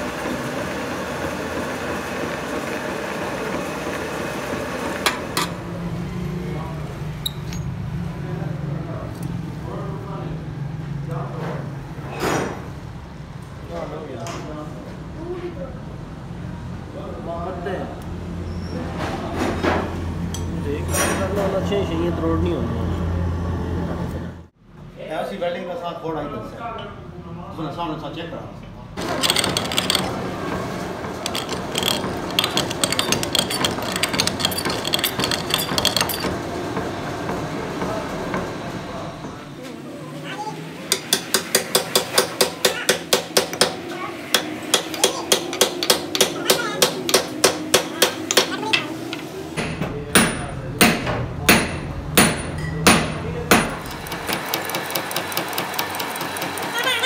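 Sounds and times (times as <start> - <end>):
drill clicking and scraping metal: 29.0 - 30.3, 31.1 - 36.4, 53.8 - 57.0
lathe running: 29.0 - 38.2, 53.8 - 57.0.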